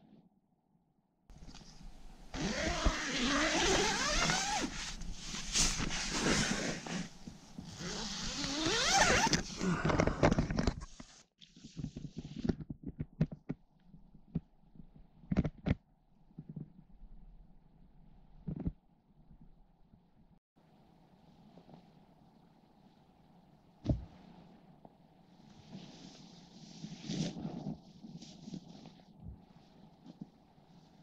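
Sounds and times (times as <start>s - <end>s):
tent fabric rustling: 1.3s - 9.8s, 25.4s - 31.0s
tent zip pulled open: 2.3s - 10.3s, 25.7s - 29.0s.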